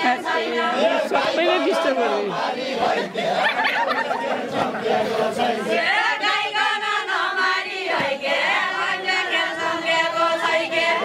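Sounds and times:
women singing in unison: 0:00.0 - 0:11.0.

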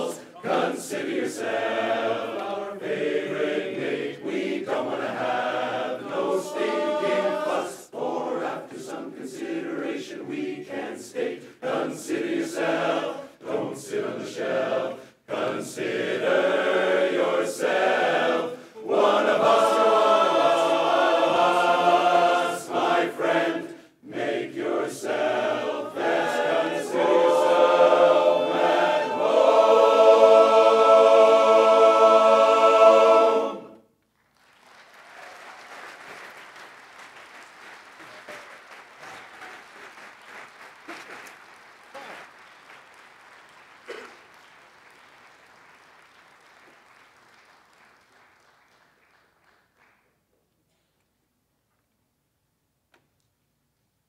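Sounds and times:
men's chorus singing a cappella: 0:00.0 - 0:33.8.

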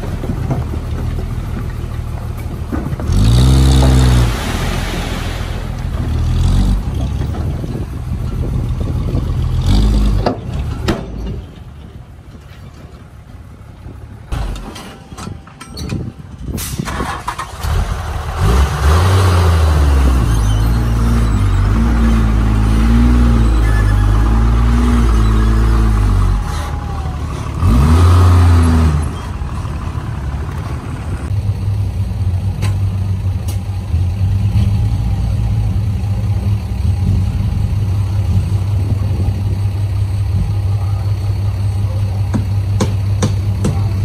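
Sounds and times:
rough low engine rumble: 0:00.0 - 0:44.0
heavy diesel engine revving: 0:02.9 - 0:10.5, 0:16.7 - 0:32.6.

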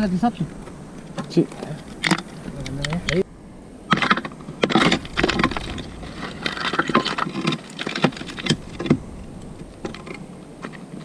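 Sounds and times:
gritty scraping of soil: 0:03.9 - 0:11.0.

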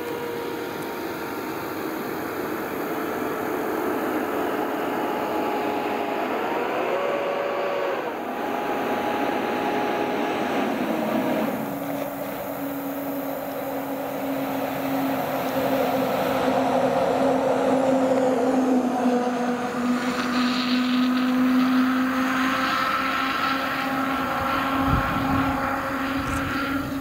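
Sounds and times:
heavy trucks driving past: 0:00.0 - 0:27.0
held siren tone: 0:00.0 - 0:27.0.

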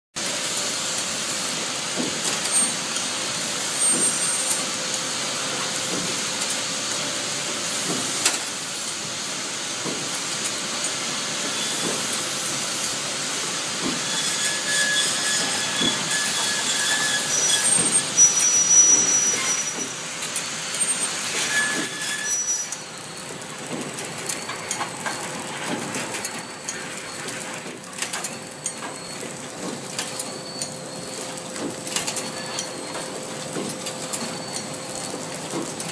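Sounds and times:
machine clatter: 0:13.8 - 0:35.9
thin high squeals: 0:14.0 - 0:23.3.

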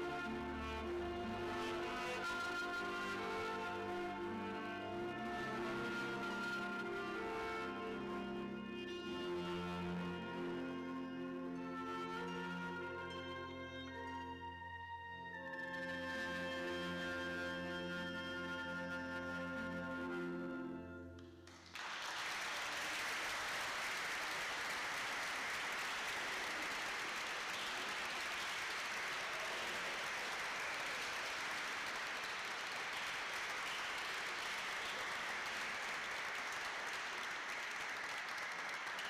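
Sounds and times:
wind and brass ensemble chord: 0:00.0 - 0:14.3
audience applause: 0:21.5 - 0:39.0.

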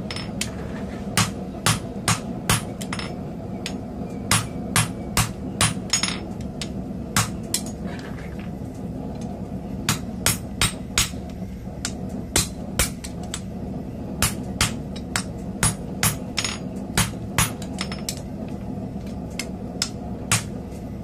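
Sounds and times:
hammer striking hot steel: 0:00.0 - 0:07.8, 0:09.2 - 0:20.6
steady low hum: 0:00.0 - 0:21.0.

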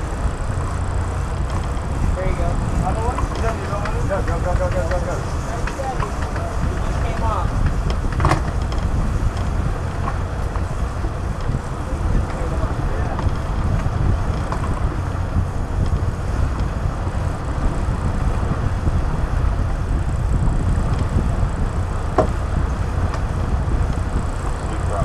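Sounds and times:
boat engines rumbling: 0:00.0 - 0:25.0
wind on microphone: 0:00.0 - 0:25.0.

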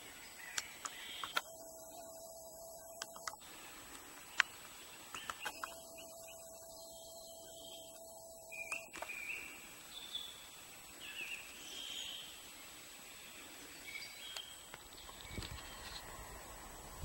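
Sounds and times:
high bird chirps: 0:00.0 - 0:03.6, 0:04.3 - 0:12.4
faint forest ambience: 0:00.0 - 0:17.0
thin steady high tone: 0:01.2 - 0:12.8, 0:15.2 - 0:17.0.

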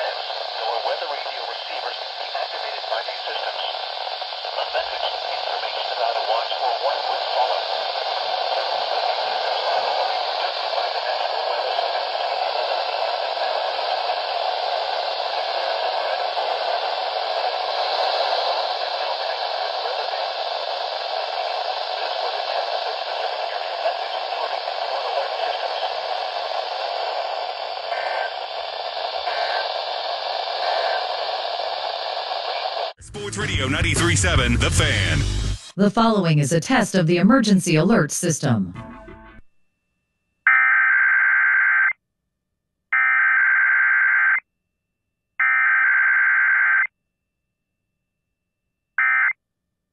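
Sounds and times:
radio static hiss: 0:00.0 - 0:39.2.

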